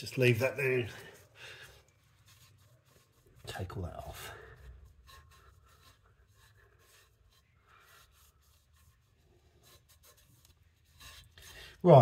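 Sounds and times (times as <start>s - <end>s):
faint scratchy rubbing: 0.0s - 12.0s.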